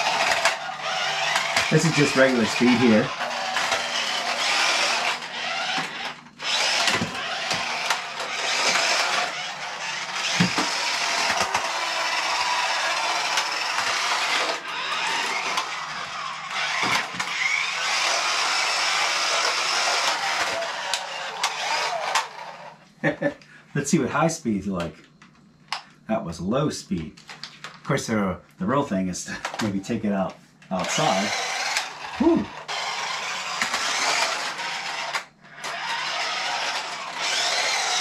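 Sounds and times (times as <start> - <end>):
small electric motor and gears whirring: 0.0 - 22.8, 30.7 - 38.0.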